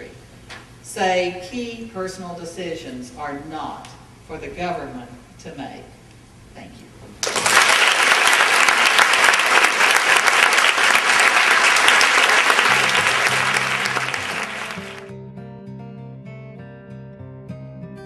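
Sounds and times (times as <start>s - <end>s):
audience applauding: 7.2s - 15.1s
acoustic guitar music: 12.7s - 18.0s.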